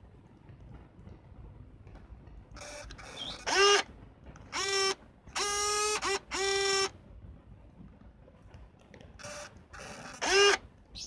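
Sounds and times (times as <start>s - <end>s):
soft whirring: 0.0s - 11.0s
camera zoom motor whirring: 2.6s - 7.0s, 9.2s - 10.6s.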